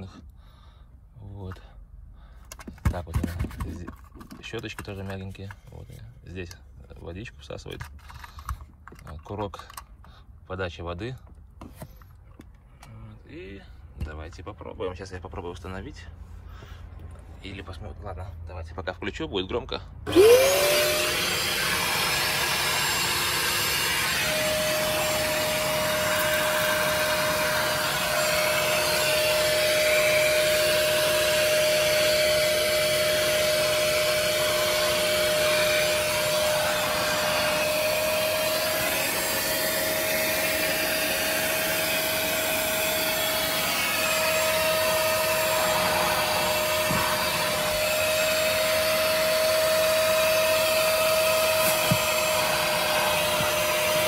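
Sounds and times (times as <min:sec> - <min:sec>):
carpet extractor motor whine: 0:20.1 - 0:54.0.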